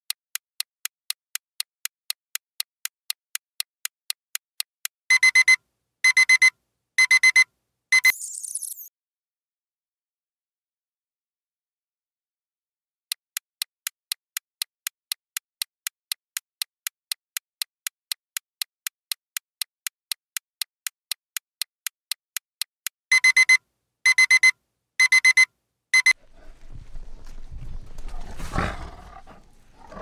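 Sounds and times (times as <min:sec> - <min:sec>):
clock ticking: 0:00.0 - 0:07.4, 0:13.3 - 0:26.2
alarm ringing: 0:05.1 - 0:07.4, 0:23.1 - 0:26.2.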